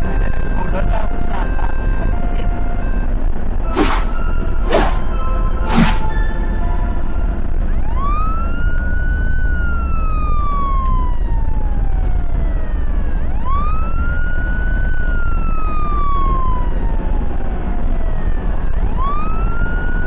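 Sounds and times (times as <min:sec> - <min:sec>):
ambulance siren wailing: 0:00.0 - 0:20.0
engine and road rumble: 0:00.0 - 0:20.0.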